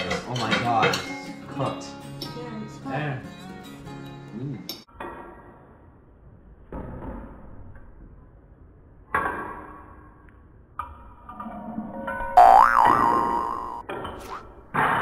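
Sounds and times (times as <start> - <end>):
tone sliding up and down: 12.4 - 13.8.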